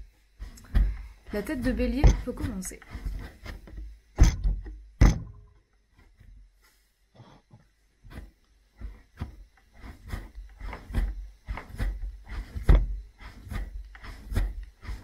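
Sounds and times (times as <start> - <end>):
clay thudding on wooden bench: 0.4 - 6.4, 10.1 - 14.5.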